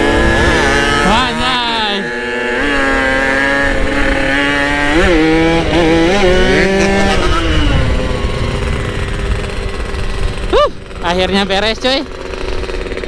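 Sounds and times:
motorcycle engine running: 0.0 - 13.0
wind rumble on microphone: 2.6 - 11.6.

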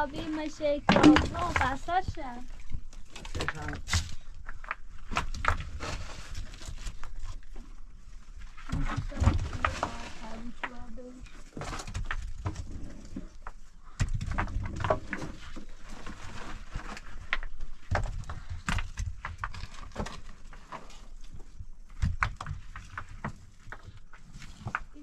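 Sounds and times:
stones knocking and clattering: 0.2 - 7.5, 8.5 - 12.7, 13.4 - 25.0.

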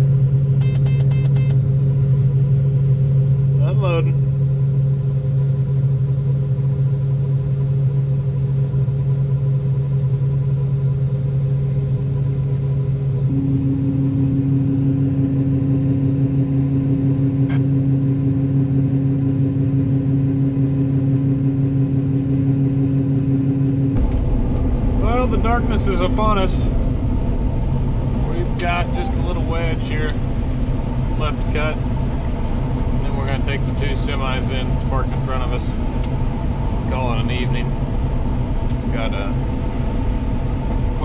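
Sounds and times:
combine low hum: 0.0 - 41.0
higher steady tone: 12.9 - 41.0.

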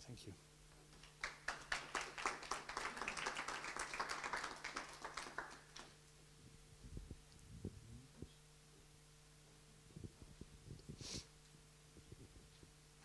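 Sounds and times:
audience applauding: 0.9 - 6.0.

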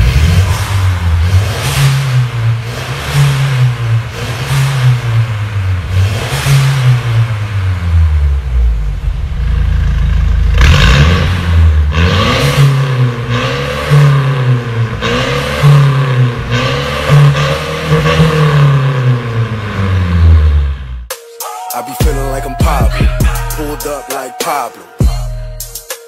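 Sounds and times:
car engine idling: 0.0 - 21.0
car engine revving: 0.0 - 21.1.

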